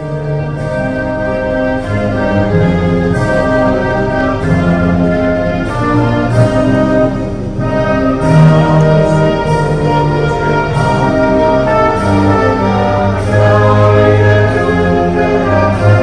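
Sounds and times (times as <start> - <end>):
orchestral music with long notes: 0.0 - 16.0.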